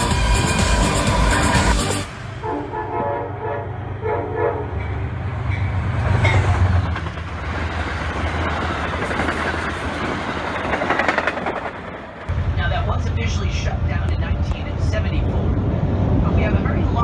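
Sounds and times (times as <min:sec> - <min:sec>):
train coaches rumbling past: 0:00.0 - 0:17.0
train horn blast: 0:00.4 - 0:04.9
wheels clattering over rail joints: 0:05.5 - 0:12.3.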